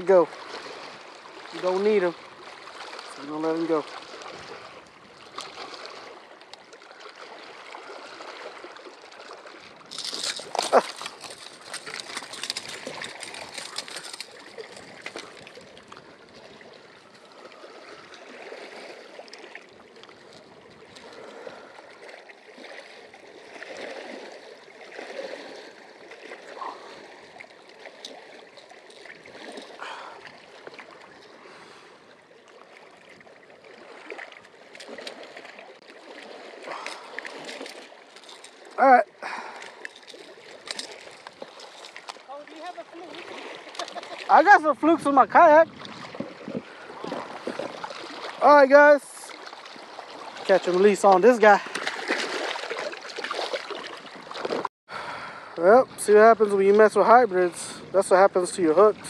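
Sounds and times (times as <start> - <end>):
lake water splashing on rocks: 0.0 - 31.8, 32.4 - 54.7
strong wind: 44.3 - 49.0, 57.1 - 59.0.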